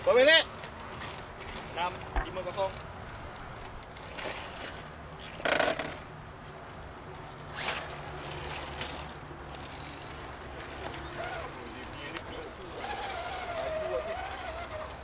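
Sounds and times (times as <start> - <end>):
small electric motor whirring: 12.6 - 15.0.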